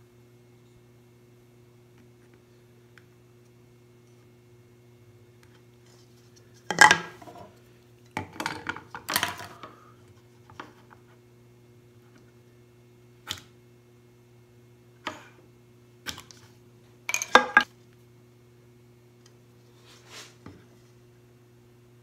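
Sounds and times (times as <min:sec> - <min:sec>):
faint steady hum: 0:00.0 - 0:22.0
tools knocking and clicking: 0:17.1 - 0:17.7.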